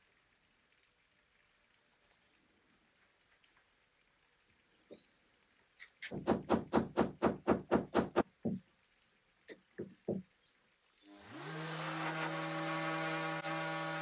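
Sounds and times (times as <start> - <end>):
hammer tapping on wood: 6.1 - 8.6, 9.5 - 10.3
orbital sander whining: 11.1 - 14.0.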